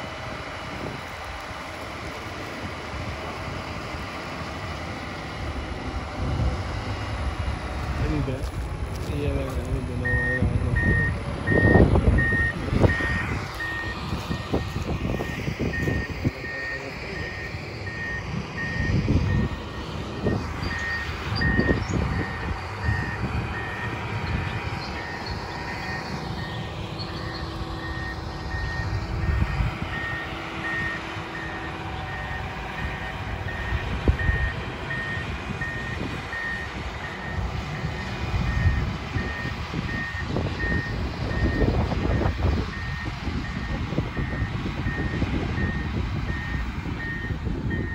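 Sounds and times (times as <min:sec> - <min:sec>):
low engine rumble: 0:00.0 - 0:47.9
reversing alarm beeps: 0:10.0 - 0:47.9.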